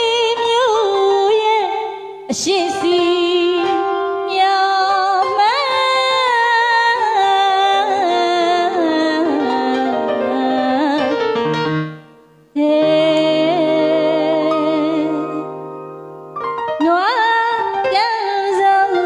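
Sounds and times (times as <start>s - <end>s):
woman singing: 0.0s - 11.5s, 12.6s - 15.6s, 16.8s - 19.0s
piano accompaniment: 0.0s - 19.0s.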